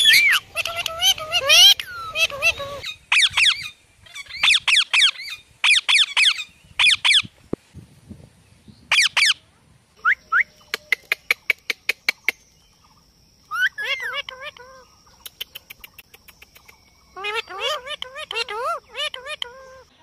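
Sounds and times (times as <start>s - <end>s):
parrots screeching: 0.0s - 7.2s, 13.5s - 14.8s, 17.2s - 19.9s.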